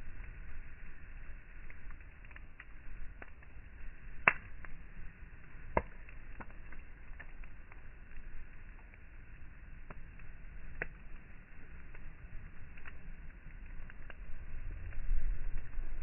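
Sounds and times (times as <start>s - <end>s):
sharp pops of fire: 0.0s - 16.0s
wood fire crackling: 0.0s - 16.0s.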